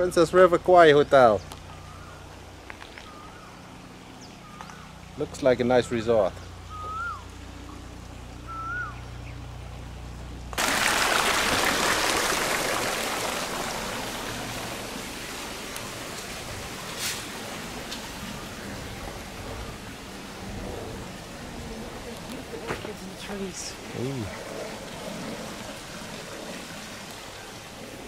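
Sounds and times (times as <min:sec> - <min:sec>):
steady low hum: 0:00.0 - 0:10.6
fountain water splashing into basin: 0:10.6 - 0:20.4, 0:23.3 - 0:28.0.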